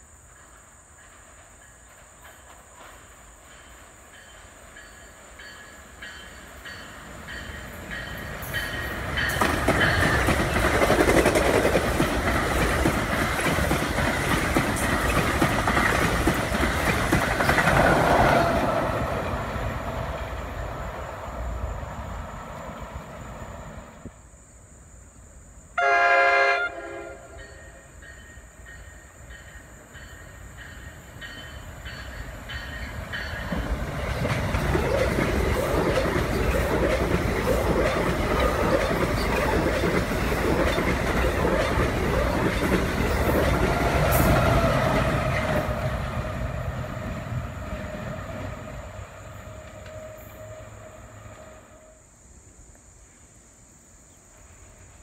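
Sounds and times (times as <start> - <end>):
train rumbling past: 0.0 - 24.2, 25.6 - 53.2
train horn blast: 25.8 - 27.8, 48.2 - 52.1.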